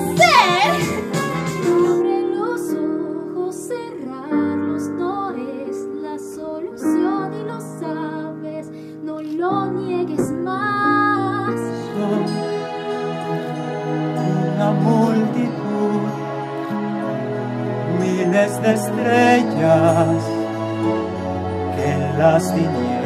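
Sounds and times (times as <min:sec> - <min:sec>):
held instrumental chords: 0:00.0 - 0:03.2
woman singing a ballad: 0:01.7 - 0:12.7.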